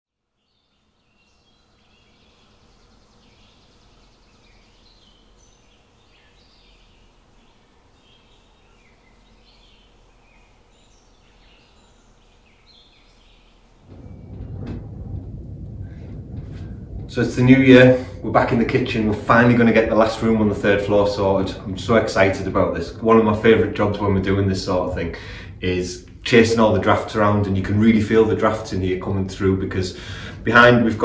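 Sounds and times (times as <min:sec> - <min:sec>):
small birds chirping: 0:00.3 - 0:14.5
room noise: 0:00.6 - 0:31.0
knocks: 0:13.8 - 0:17.3.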